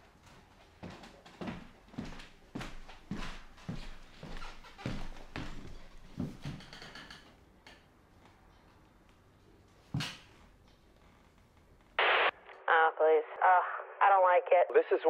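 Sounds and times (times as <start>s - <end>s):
television static hiss: 11.8s - 15.0s
newscaster speaking through tv speaker: 12.7s - 15.0s.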